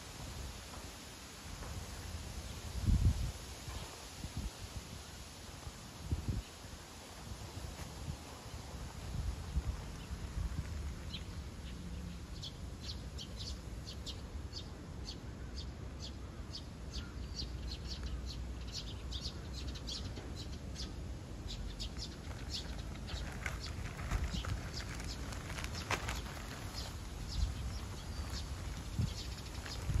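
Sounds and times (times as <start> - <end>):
small birds chirping: 9.0 - 30.0.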